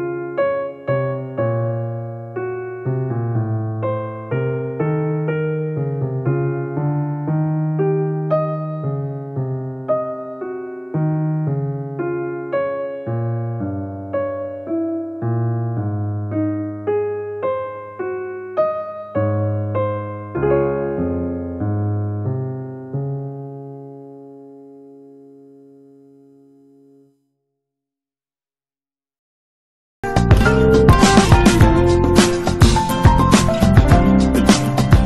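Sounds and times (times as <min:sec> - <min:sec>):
slow piano melody: 0:00.0 - 0:27.4, 0:30.0 - 0:35.0
held low bass notes: 0:30.2 - 0:35.0.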